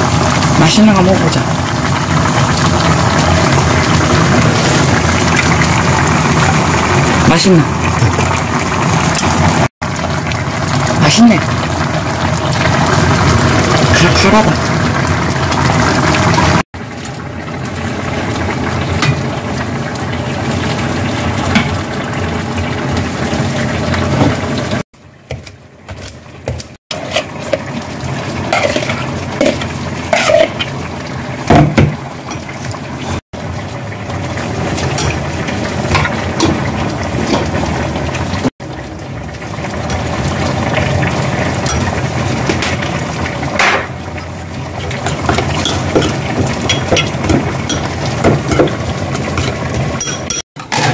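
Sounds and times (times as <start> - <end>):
sauce being stirred: 25.2 - 30.8
utensils clinking against bowls: 28.5 - 30.7, 34.8 - 35.3, 41.6 - 42.8, 43.6 - 50.9.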